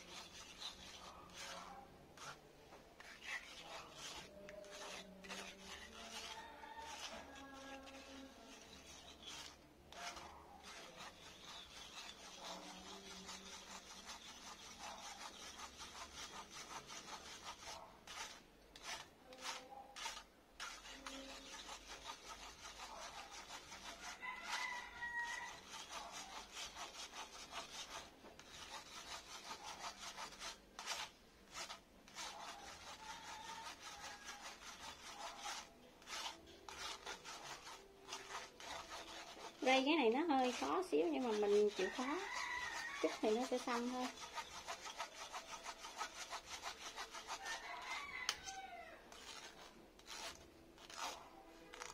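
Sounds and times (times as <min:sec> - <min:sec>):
spoon scraping metal sieve: 0:00.0 - 0:02.4, 0:03.0 - 0:51.9
rooster crowing: 0:06.3 - 0:07.6, 0:24.1 - 0:25.6, 0:41.8 - 0:43.2, 0:47.4 - 0:49.1.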